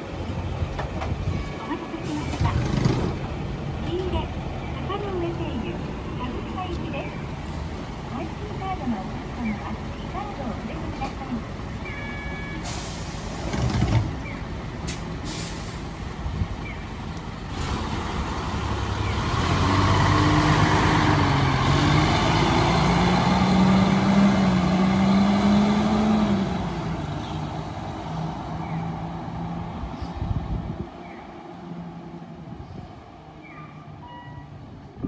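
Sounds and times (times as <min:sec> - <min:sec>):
bus engine accelerating: 0:00.0 - 0:35.0
bus door closing: 0:12.0 - 0:16.0.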